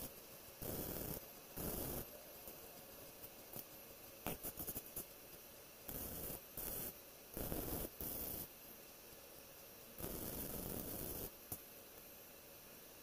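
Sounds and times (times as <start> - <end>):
welding arc bursts: 0.0 - 2.1, 5.9 - 8.5, 10.0 - 11.6.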